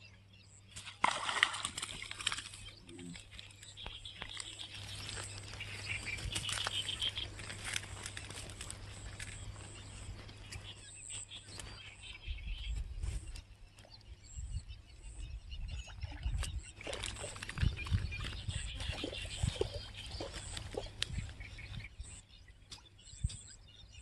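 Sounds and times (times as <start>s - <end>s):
birds chirping: 0.0s - 24.0s
fish splashing and flapping: 0.8s - 10.4s, 16.1s - 21.4s.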